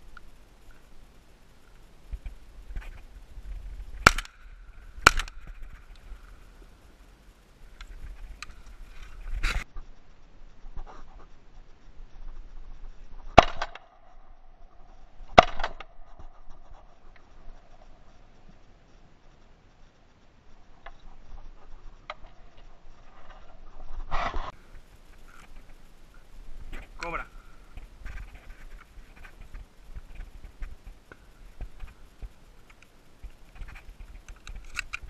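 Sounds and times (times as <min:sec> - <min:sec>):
gun handling noise: 0:04.0 - 0:04.4, 0:05.0 - 0:06.4, 0:32.6 - 0:35.0
shotgun shots: 0:04.0 - 0:04.4, 0:05.0 - 0:05.5.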